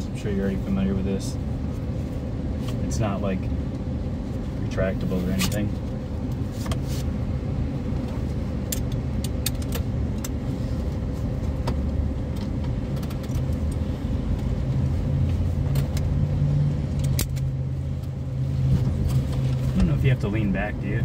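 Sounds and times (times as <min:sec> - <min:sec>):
seatbelt buckle clicks and clinks: 0:08.7 - 0:10.4, 0:11.7 - 0:13.8, 0:16.9 - 0:17.5.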